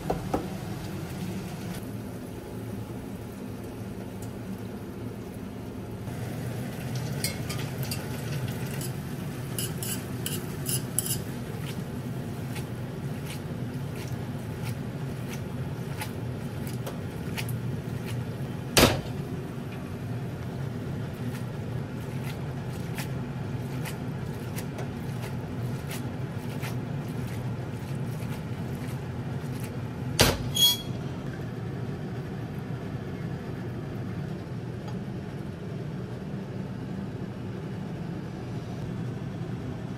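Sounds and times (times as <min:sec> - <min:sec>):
steady low hum: 0:00.0 - 0:39.9
tongs clinking in frying pan: 0:07.0 - 0:11.3.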